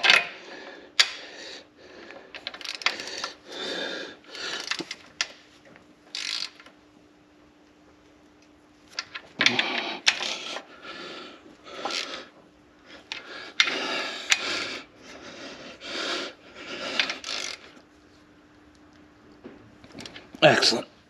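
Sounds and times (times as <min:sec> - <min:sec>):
ratchet wrench clicking: 0:02.4 - 0:03.3, 0:04.6 - 0:05.0, 0:06.1 - 0:06.7, 0:17.0 - 0:17.7.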